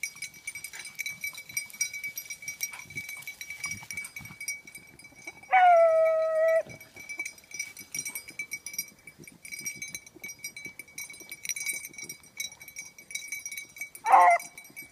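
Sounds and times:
dog baying: 0:05.5 - 0:06.7, 0:14.0 - 0:14.5.

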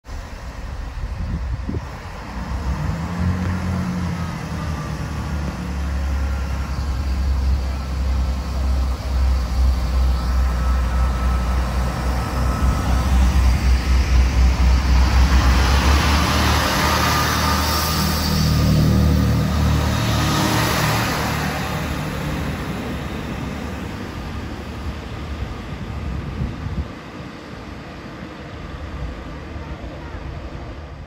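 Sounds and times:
diesel train engines droning: 0:00.1 - 0:31.0.

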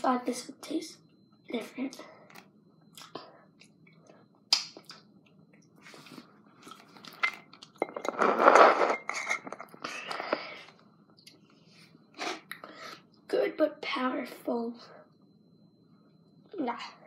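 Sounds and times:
chewing and mouth sounds: 0:02.3 - 0:07.8.

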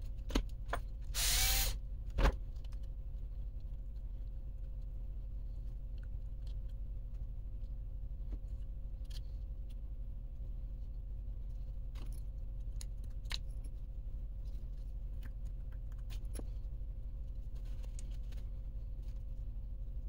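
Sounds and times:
low hum: 0:00.0 - 0:20.0.

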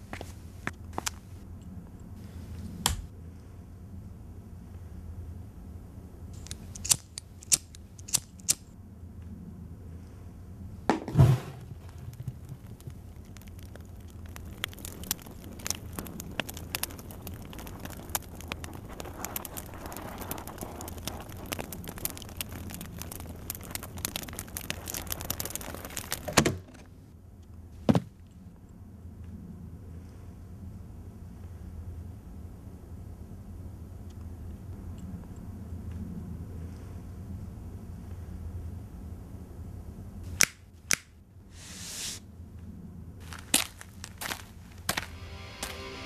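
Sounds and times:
fire crackling and popping: 0:06.4 - 0:08.7, 0:11.0 - 0:27.0, 0:43.2 - 0:46.0
sharp clicks: 0:06.4 - 0:08.7
heavy thump: 0:10.9 - 0:11.9.

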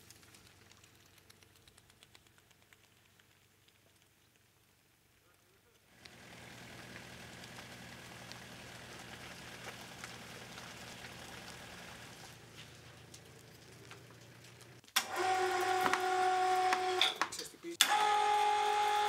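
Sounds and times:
electric chain hoist motor whine: 0:06.0 - 0:12.3, 0:14.0 - 0:17.2, 0:17.8 - 0:19.0
car engine running: 0:06.0 - 0:14.8.

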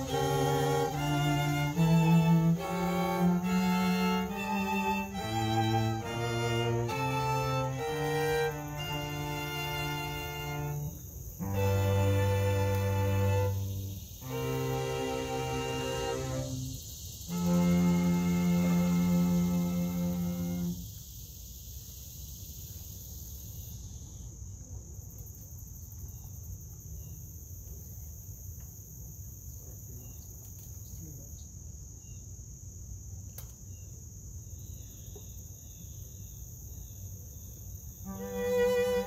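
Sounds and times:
low outdoor rumble: 0:00.0 - 0:20.8
string quartet playing: 0:00.0 - 0:20.8, 0:38.1 - 0:39.0
insects chirring: 0:00.0 - 0:39.0.

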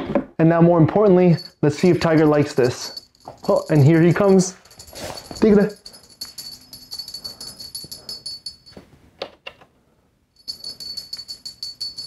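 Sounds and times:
small bell jingling: 0:01.2 - 0:08.8, 0:10.4 - 0:12.0.

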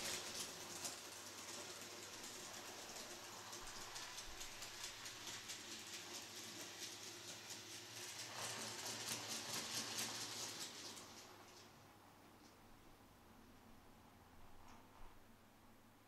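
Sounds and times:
model train wheels clicking: 0:00.0 - 0:11.7.

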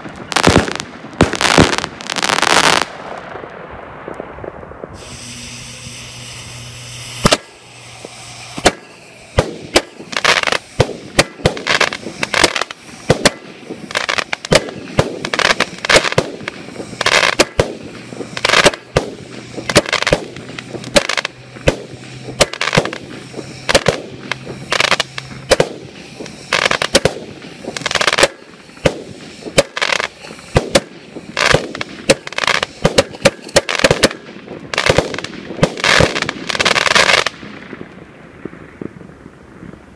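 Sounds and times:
fireworks firing and bursting: 0:00.0 - 0:39.9.

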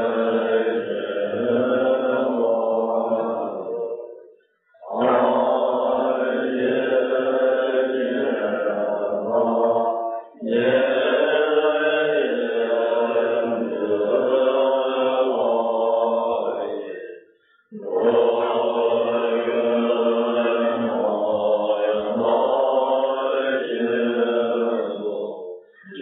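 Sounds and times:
ritual chanting: 0:00.0 - 0:26.0.

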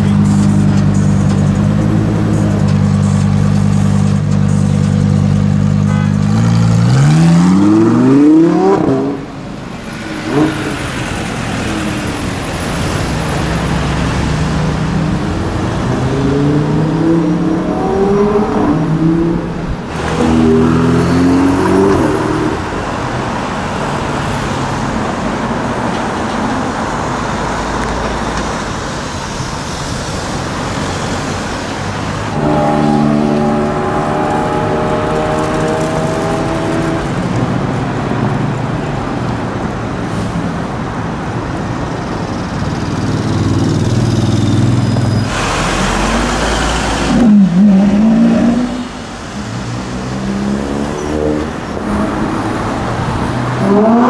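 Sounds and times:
engine revving: 0:00.0 - 0:22.9, 0:30.7 - 0:37.5, 0:42.9 - 0:54.0
sports car engines accelerating: 0:00.0 - 0:28.3, 0:30.4 - 0:40.0, 0:40.6 - 0:54.0
traffic noise: 0:00.0 - 0:54.0.

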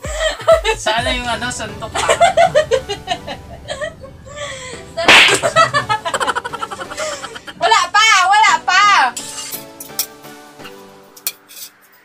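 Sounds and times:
plastic plate slapped on concrete: 0:05.1 - 0:05.5.

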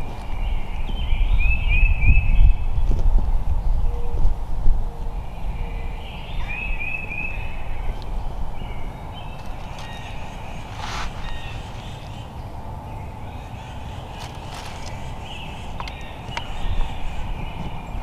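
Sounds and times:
rustle: 0:00.0 - 0:18.0
faint bird calls: 0:04.9 - 0:18.0.

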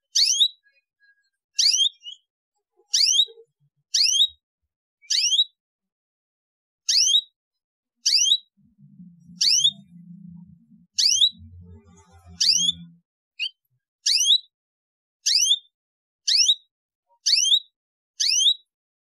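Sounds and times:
canary chirping: 0:00.0 - 0:04.4, 0:05.0 - 0:05.6, 0:06.9 - 0:07.4, 0:08.0 - 0:14.5, 0:15.2 - 0:15.7, 0:16.3 - 0:18.7
faint low rumble: 0:08.6 - 0:13.0.

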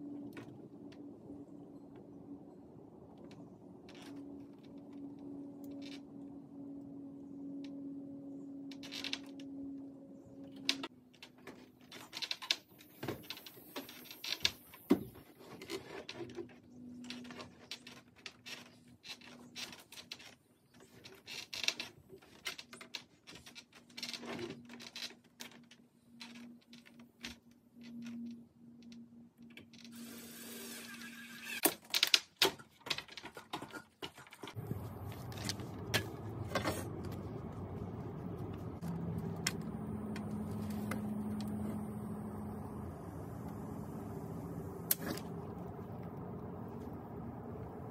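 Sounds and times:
rustling with sharp clicks: 0:10.4 - 0:30.0
steady low hum: 0:34.6 - 0:47.9.

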